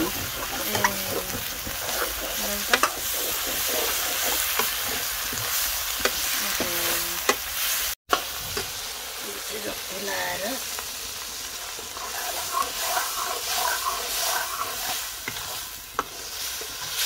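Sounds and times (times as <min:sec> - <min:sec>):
metal spoon scraping a pan: 0:00.0 - 0:07.6, 0:11.6 - 0:17.0
meat sizzling in hot oil: 0:00.0 - 0:17.0.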